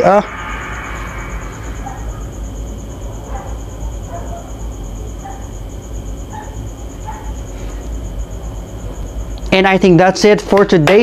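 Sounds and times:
low rumble: 0:00.0 - 0:04.1
cricket chirping: 0:00.0 - 0:11.0.

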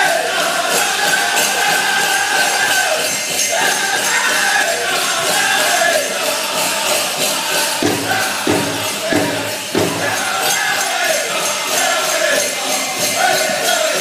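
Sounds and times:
group singing over big drum: 0:00.0 - 0:14.0
jingling leg bells: 0:00.0 - 0:14.0
heavy drum strokes: 0:05.2 - 0:10.9.

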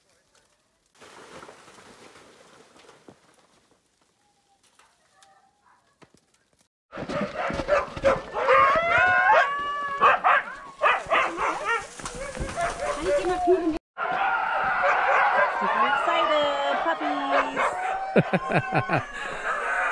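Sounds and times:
dogs yelping and barking: 0:07.3 - 0:13.4, 0:14.1 - 0:15.7, 0:17.0 - 0:19.9
dogs howling: 0:07.7 - 0:19.9.

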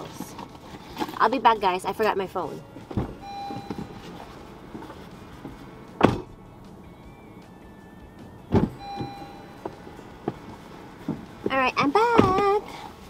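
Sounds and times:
car door thudding shut: 0:05.9 - 0:06.4, 0:08.5 - 0:10.4.

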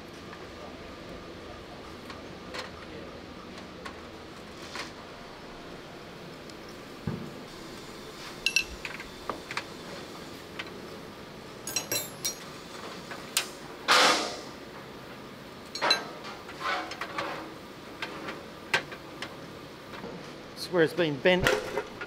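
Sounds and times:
tools clinking against metal: 0:08.4 - 0:09.0, 0:11.6 - 0:12.5, 0:15.7 - 0:16.3.

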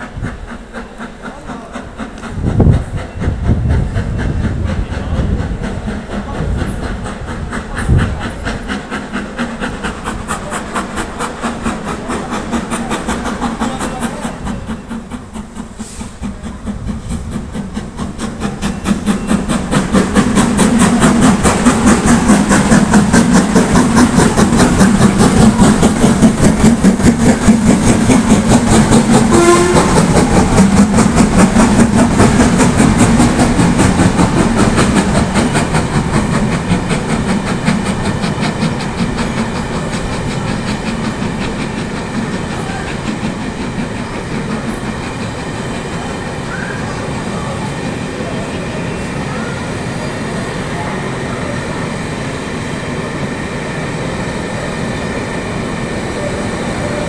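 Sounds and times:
steam locomotive exhaust beats: 0:00.0 - 0:57.0
wheels on rails: 0:00.0 - 0:57.0.

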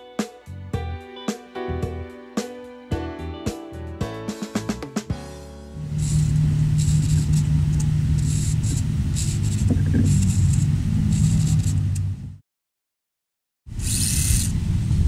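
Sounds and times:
small motor whirring: 0:05.8 - 0:11.9, 0:13.8 - 0:14.6
steady engine-like hum: 0:05.8 - 0:12.4.

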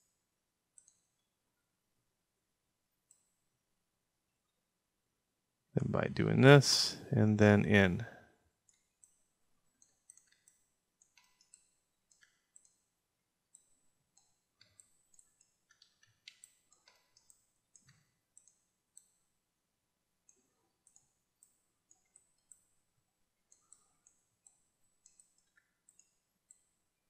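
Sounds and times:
mouse and keyboard clicks: 0:00.8 - 0:01.1, 0:09.8 - 0:12.9, 0:13.5 - 0:19.2, 0:23.5 - 0:26.7.

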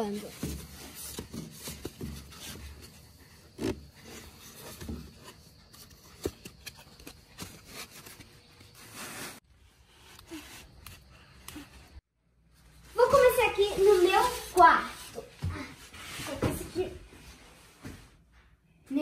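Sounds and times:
foam noodles rubbing and scraping: 0:00.0 - 0:06.2, 0:06.8 - 0:12.0.

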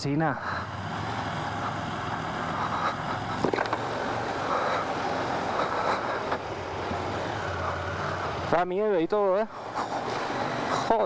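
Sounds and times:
wind and road noise: 0:00.0 - 0:11.0
motorcycle engine running: 0:00.4 - 0:09.0.

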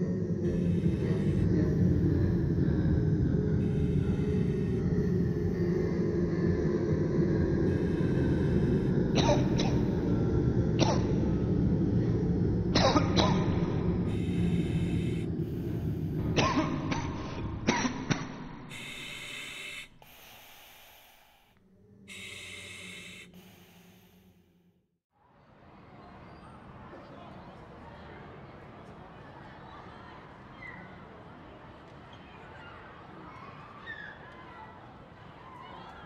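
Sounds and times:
hissing sounds: 0:14.0 - 0:16.4, 0:18.7 - 0:24.4.

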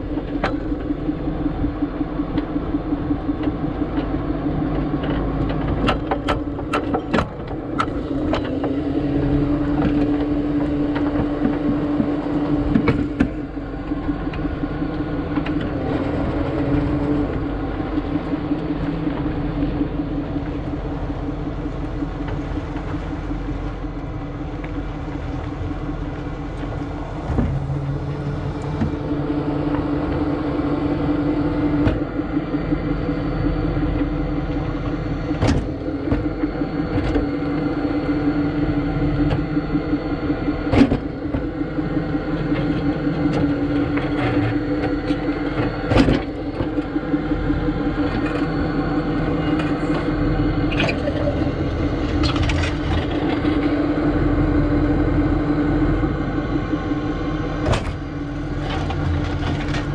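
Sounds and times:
tow truck engine running: 0:00.0 - 0:59.9.

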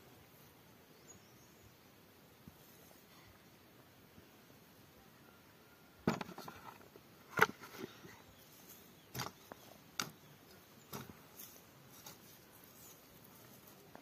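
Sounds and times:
knocks and scrapes in soil: 0:06.0 - 0:14.0.

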